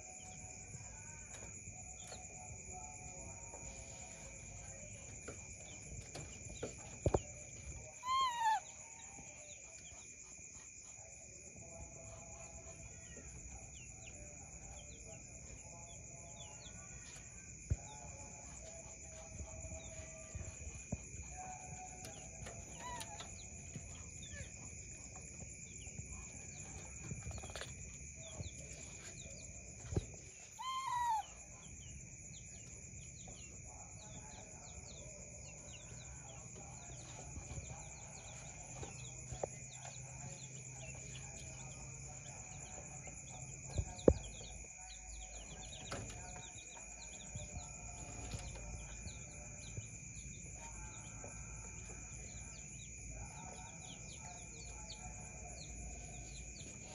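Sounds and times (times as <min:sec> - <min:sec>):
chicks peeping: 0:12.0 - 0:56.9.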